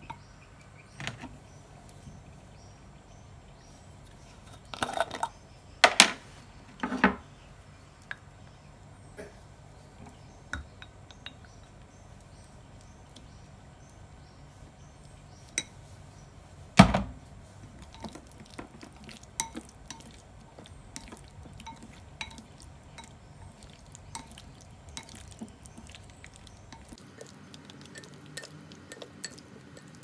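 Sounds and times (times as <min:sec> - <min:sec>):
utensils stirring salad in glass bowl: 0:17.5 - 0:30.0.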